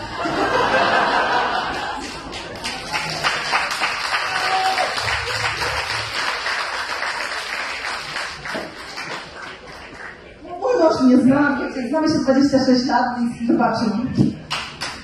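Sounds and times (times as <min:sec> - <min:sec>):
audience laughing and cheering: 0:00.0 - 0:07.4
audience applause: 0:01.0 - 0:10.3.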